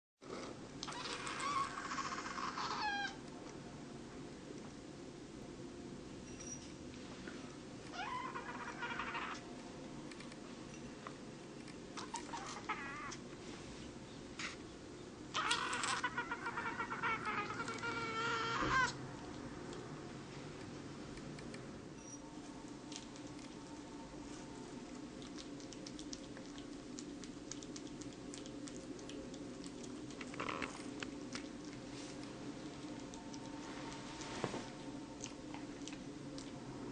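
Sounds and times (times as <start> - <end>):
steady hum: 0.2 - 36.9
kitten meowing: 0.9 - 3.2, 12.0 - 13.2, 15.4 - 19.0
kitten licking and nibbling: 22.6 - 36.7.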